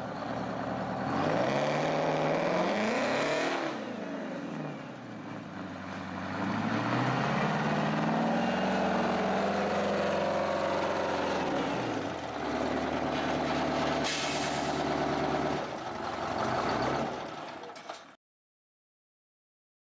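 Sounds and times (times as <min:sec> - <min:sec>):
loud diesel engine running: 0:00.0 - 0:18.1.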